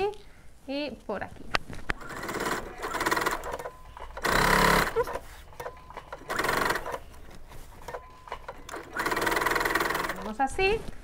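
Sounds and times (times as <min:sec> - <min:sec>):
sewing machine running: 0:02.0 - 0:10.4.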